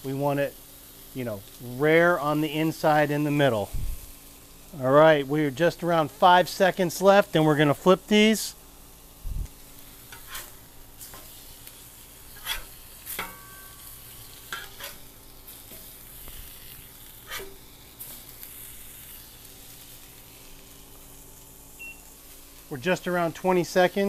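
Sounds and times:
fish steaks sizzling on griddle: 0:00.0 - 0:24.0
metal spatula scraping griddle: 0:09.8 - 0:18.7.

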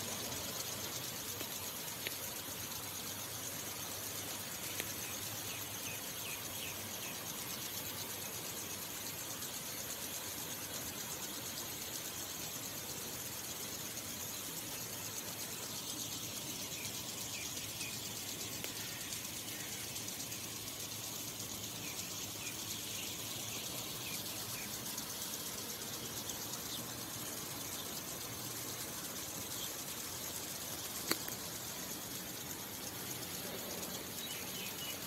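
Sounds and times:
small birds chirping: 0:00.0 - 0:35.0
steady outdoor hiss: 0:00.0 - 0:35.0
sharp click: 0:31.0 - 0:31.4.

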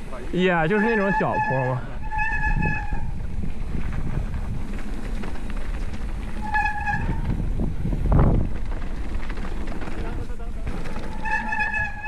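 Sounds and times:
disc brakes squealing: 0:00.0 - 0:03.4, 0:06.2 - 0:07.6, 0:09.9 - 0:12.0
tyres on dirt trail: 0:00.0 - 0:12.0
wind on microphone: 0:01.2 - 0:09.7
bike thud: 0:03.2 - 0:12.0.

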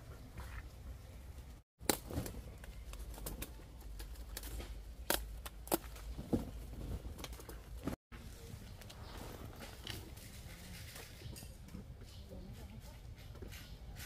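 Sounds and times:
peppers snapping off plants: 0:01.8 - 0:06.2.

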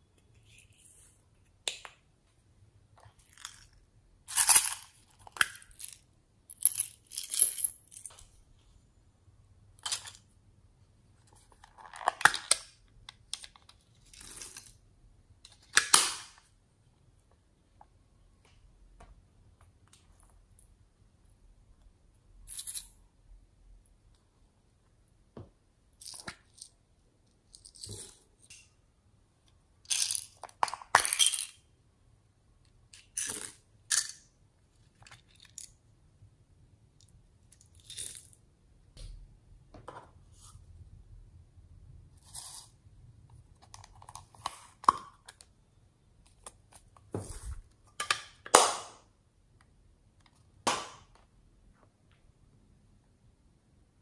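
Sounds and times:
plastic toys clicking and rustling: 0:34.9 - 0:35.8.

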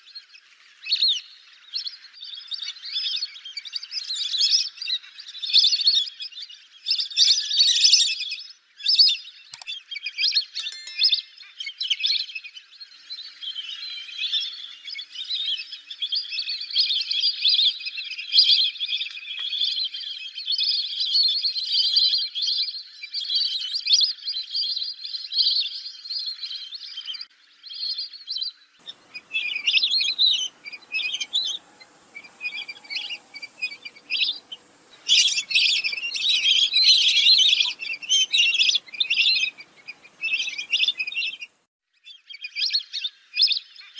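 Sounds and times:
ducks whistling calls: 0:28.8 - 0:41.5.

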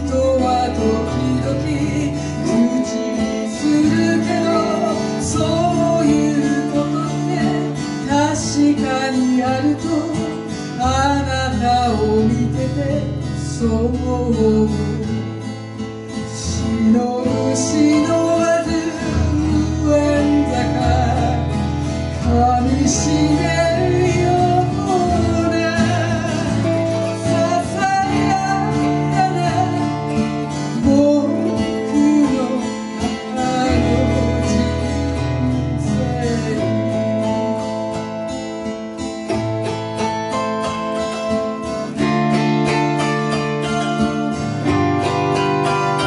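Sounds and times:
acoustic guitar: 0:00.0 - 0:46.0
wordless singing: 0:16.4 - 0:37.7.

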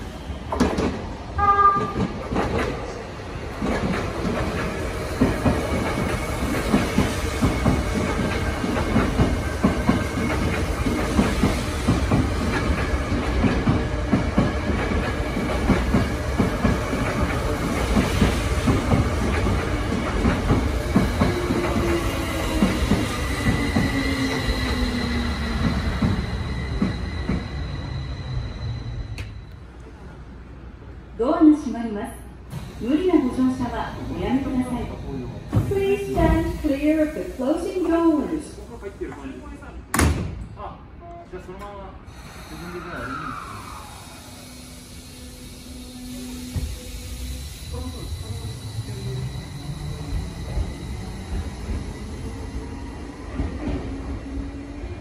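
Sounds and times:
train wheels clacking over rail joints: 0:03.6 - 0:24.4
train motor whine: 0:42.2 - 0:52.2.

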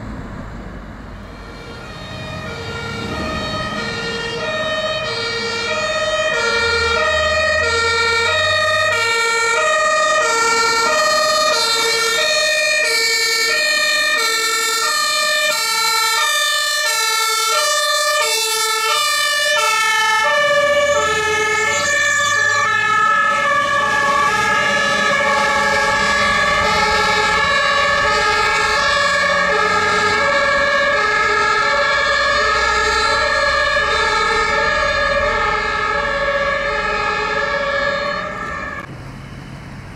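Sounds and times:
fire engine passing: 0:00.0 - 0:39.9
two-tone emergency siren: 0:01.2 - 0:39.6.

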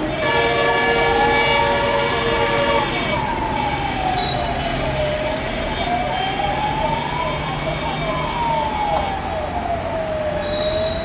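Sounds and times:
long horn blast: 0:00.0 - 0:03.3
wailing siren: 0:00.0 - 0:11.0.

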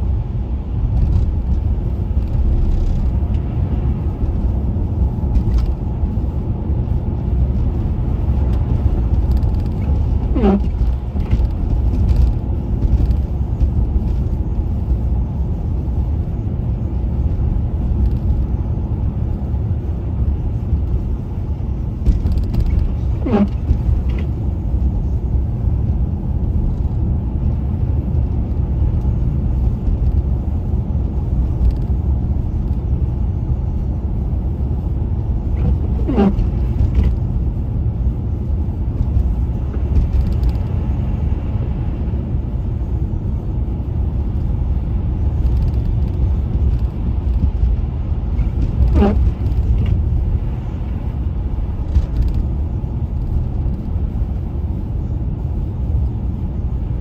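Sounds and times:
car road and engine rumble: 0:00.0 - 0:57.0
brief squeaks: 0:35.6 - 0:36.5.

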